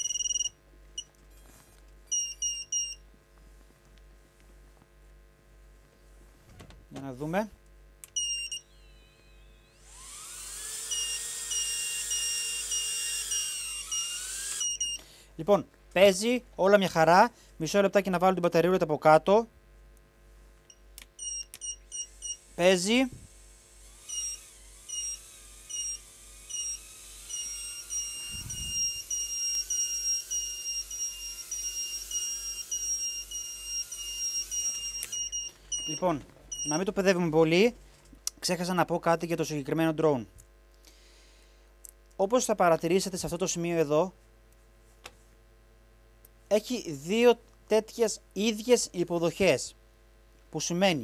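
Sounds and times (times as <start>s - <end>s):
high beeps: 0.0s - 0.5s, 8.2s - 9.6s, 24.1s - 36.9s
drone motors whining: 8.2s - 15.0s, 21.6s - 36.8s.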